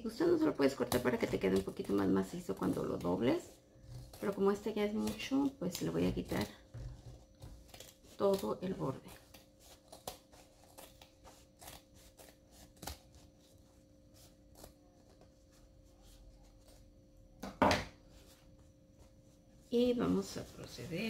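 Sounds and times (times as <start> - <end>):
scissors snipping fabric: 7.3 - 13.3.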